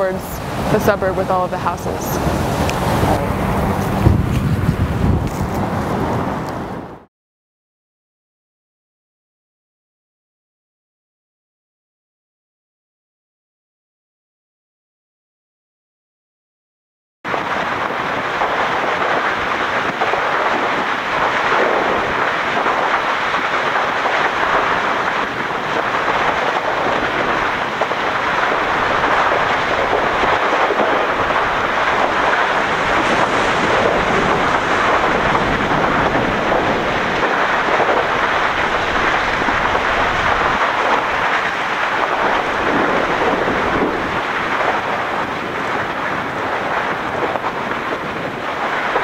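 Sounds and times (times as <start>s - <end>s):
loud rushing roar: 0.0s - 7.1s, 28.2s - 45.8s.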